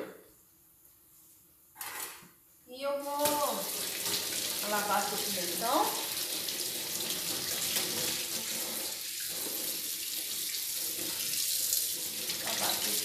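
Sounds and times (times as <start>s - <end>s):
tap water splashing into sink: 3.2s - 13.0s.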